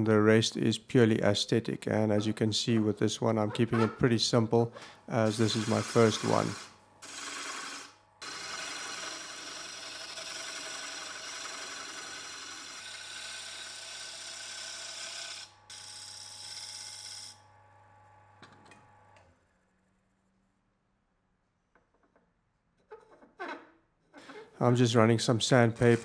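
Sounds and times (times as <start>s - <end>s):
lathe motor hum: 5.2s - 15.2s
tool cutting wood on lathe: 5.2s - 17.4s, 25.8s - 26.0s.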